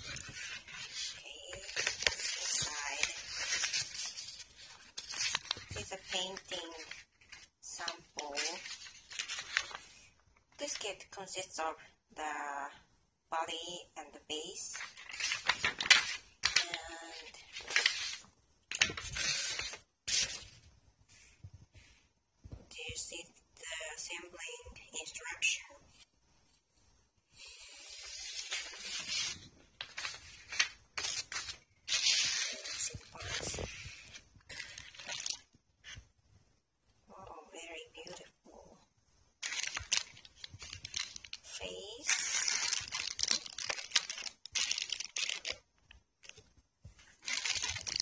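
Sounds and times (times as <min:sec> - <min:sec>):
packing material rustling: 0:00.0 - 0:10.1, 0:14.7 - 0:20.6, 0:27.8 - 0:36.0, 0:39.4 - 0:46.4, 0:47.0 - 0:48.0
plastic bags crinkling: 0:34.4 - 0:35.5, 0:39.4 - 0:45.7, 0:47.1 - 0:48.0.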